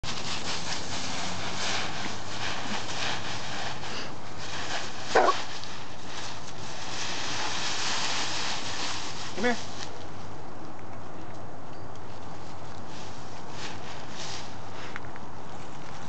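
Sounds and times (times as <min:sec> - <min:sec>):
dogs rustling through dry leaves: 0:00.0 - 0:10.6, 0:12.1 - 0:16.0
dog bark: 0:05.1 - 0:05.4.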